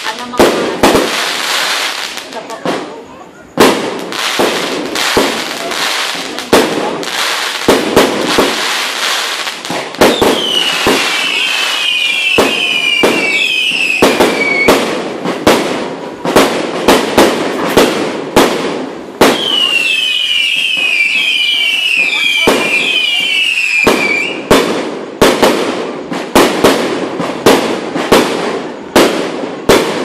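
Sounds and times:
fireworks bangs: 0.0s - 30.0s
high falling firework whistles: 7.2s - 15.0s, 19.2s - 24.6s.

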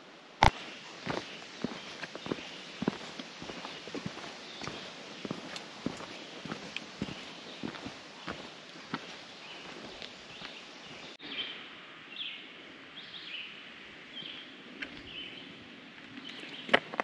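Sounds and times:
footsteps on woodland trail: 0.4s - 11.2s
bird calling: 0.4s - 11.6s.

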